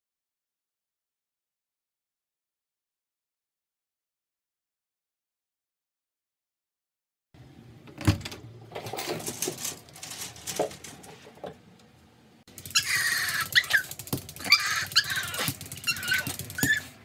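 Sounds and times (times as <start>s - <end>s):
dog whining and yelping: 12.6s - 17.0s.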